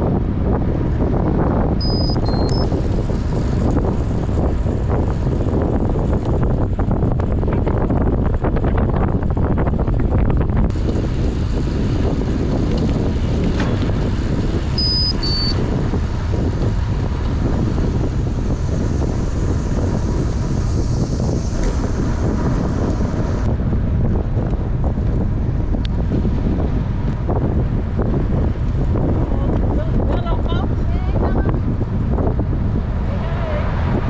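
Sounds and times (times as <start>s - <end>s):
wind buffeting microphone: 0.0s - 34.0s
short high beeps: 1.8s - 2.7s, 14.8s - 15.6s.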